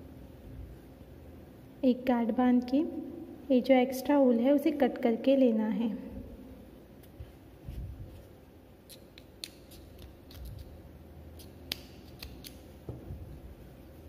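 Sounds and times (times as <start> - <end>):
small scissors snipping: 8.9 - 10.7, 11.4 - 12.7.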